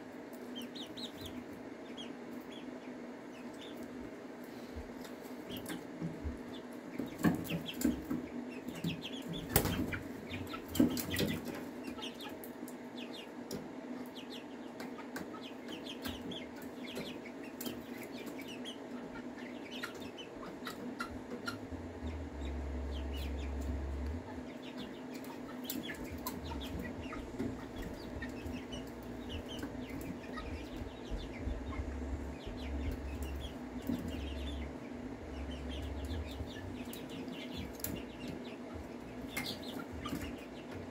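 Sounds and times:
chickens peeping and clucking: 0:00.0 - 0:40.9.

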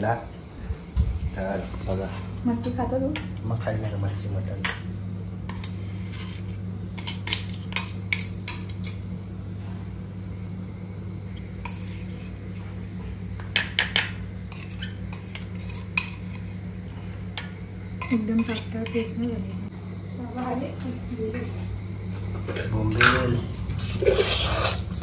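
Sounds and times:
steady low hum: 0:00.0 - 0:25.0
spoon and dishes clinking: 0:13.6 - 0:16.6, 0:17.4 - 0:19.6.

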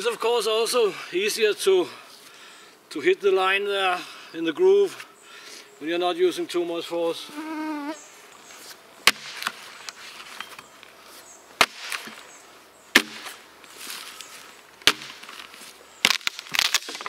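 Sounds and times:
axe knocking into log: 0:13.0 - 0:13.3, 0:14.8 - 0:15.2.

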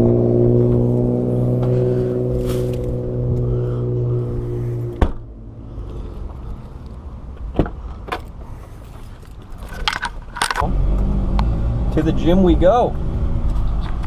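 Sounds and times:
car engine starting: 0:00.0 - 0:06.9, 0:09.8 - 0:14.0.

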